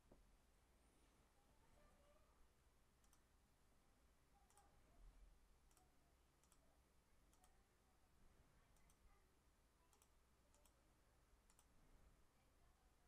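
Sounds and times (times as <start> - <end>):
computer mouse clicking: 3.0 - 3.3, 4.5 - 4.7, 5.7 - 6.6, 7.3 - 7.6, 9.9 - 10.8, 11.5 - 11.7.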